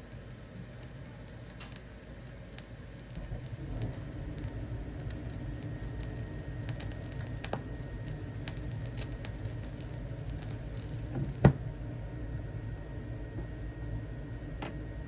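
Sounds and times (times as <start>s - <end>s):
vinyl crackles and pops: 0.0s - 11.7s
vinyl rumble and hiss: 0.0s - 15.0s.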